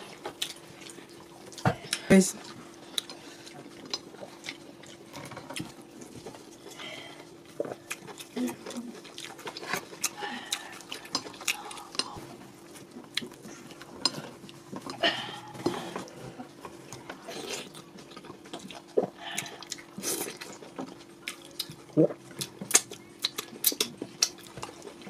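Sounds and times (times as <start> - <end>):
faint steady hum: 0.0 - 25.0
wet eating clicks and smacks: 16.9 - 25.0.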